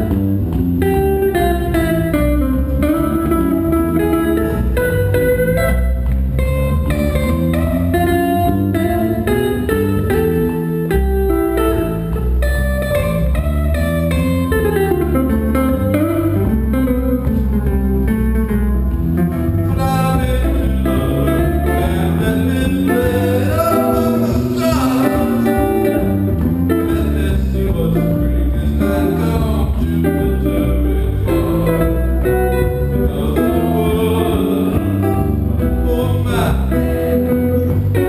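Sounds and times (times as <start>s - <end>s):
jazz guitar melody and chords: 0.0s - 38.0s
walking bass line: 0.0s - 38.0s.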